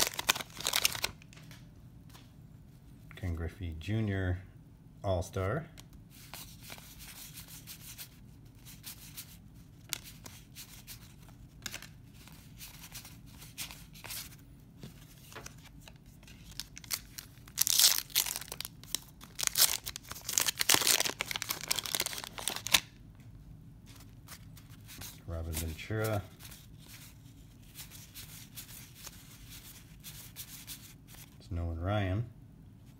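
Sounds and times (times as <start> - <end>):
paper wrapper tearing and crinkling: 0.0 - 1.4, 15.3 - 22.9
cards shuffling: 0.0 - 1.5, 6.1 - 22.9, 23.9 - 31.4.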